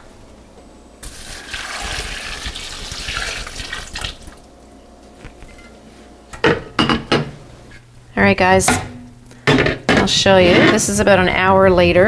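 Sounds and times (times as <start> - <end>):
water running from a tap: 1.0 - 4.4.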